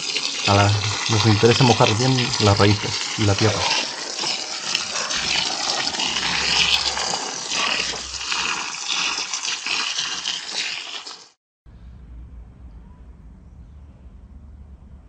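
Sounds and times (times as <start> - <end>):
water pouring onto soil: 0.0 - 11.4.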